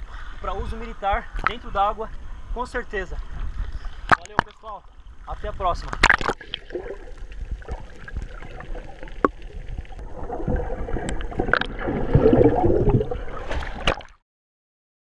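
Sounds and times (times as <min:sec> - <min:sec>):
underwater water sloshing: 0:01.3 - 0:14.2
churning rush of bubbles: 0:06.0 - 0:14.2.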